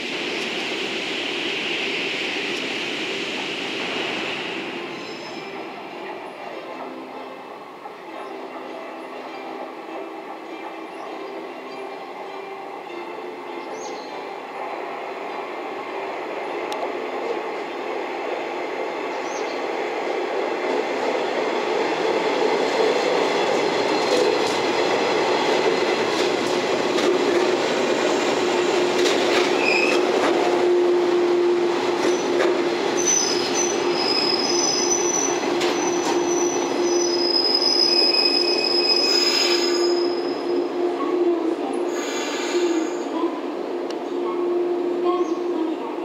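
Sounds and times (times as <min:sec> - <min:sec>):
train brakes squealing: 0:04.9 - 0:05.8, 0:29.4 - 0:30.1, 0:33.0 - 0:40.6, 0:41.8 - 0:43.1
train wheels rumbling and clattering: 0:14.5 - 0:40.7.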